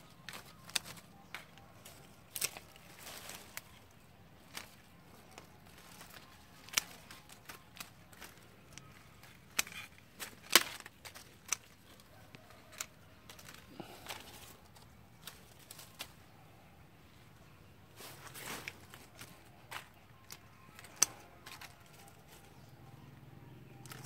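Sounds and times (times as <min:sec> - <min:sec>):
pruning shears snipping branches: 0:00.1 - 0:16.3, 0:18.0 - 0:22.5.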